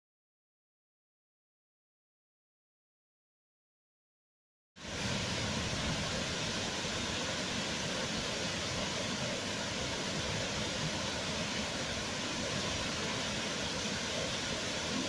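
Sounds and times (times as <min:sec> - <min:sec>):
waterfall rushing: 0:04.8 - 0:15.0.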